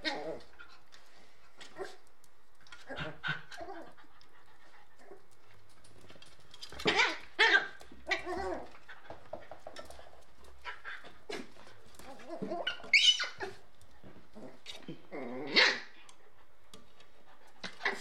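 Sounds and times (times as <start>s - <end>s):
puppies crying: 12.2s - 13.6s.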